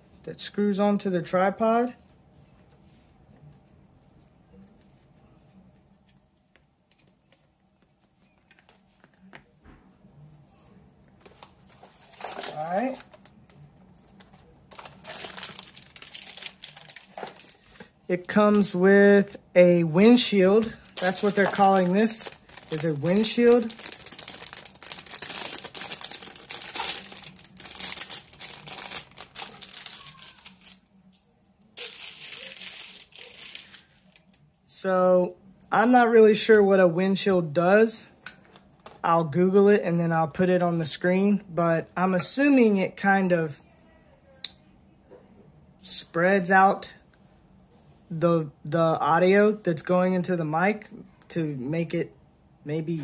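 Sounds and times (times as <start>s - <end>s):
plastic bag crinkling: 11.3s - 13.5s, 14.1s - 18.8s, 19.8s - 30.9s, 31.8s - 34.5s.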